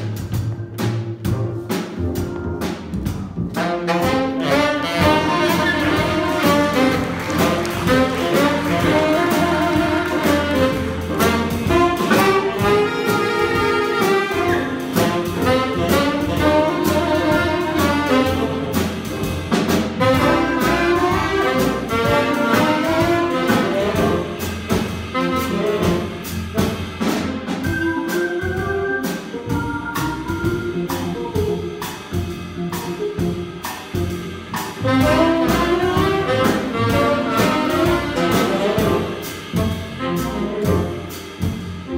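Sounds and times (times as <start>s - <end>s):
drums: 0.0s - 41.9s
upright bass: 0.0s - 41.9s
saxophones: 3.6s - 19.1s
keyboard: 26.5s - 41.2s
flute: 27.6s - 30.7s.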